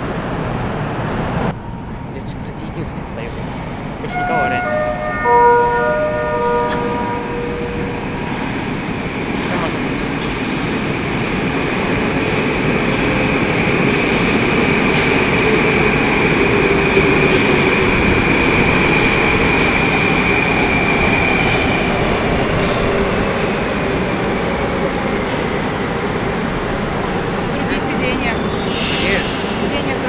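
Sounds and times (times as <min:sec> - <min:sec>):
high whine: 0:00.0 - 0:11.5
train wheels rumbling on rails: 0:06.1 - 0:30.0.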